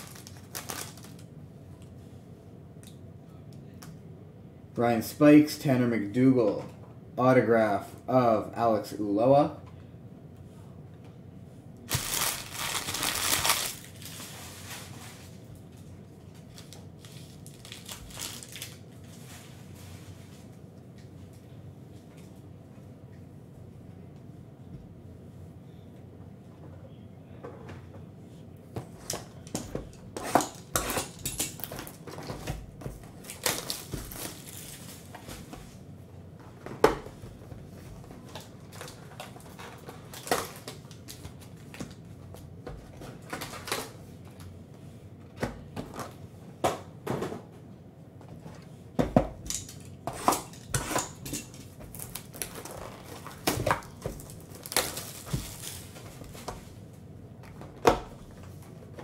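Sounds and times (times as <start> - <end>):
cardboard boxes and foil packs handled: 0.0 - 1.3, 11.9 - 20.1, 30.1 - 35.6, 38.1 - 44.0, 49.5 - 56.8
plastic shrink wrap crinkling: 0.0 - 1.3, 11.9 - 15.4, 16.3 - 19.2, 33.2 - 35.2, 51.4 - 56.5.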